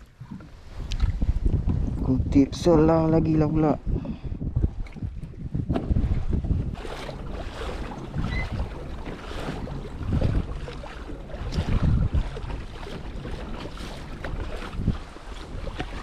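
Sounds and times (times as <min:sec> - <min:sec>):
water washing against kayak: 0:00.0 - 0:16.0
wind buffeting microphone: 0:00.0 - 0:16.0.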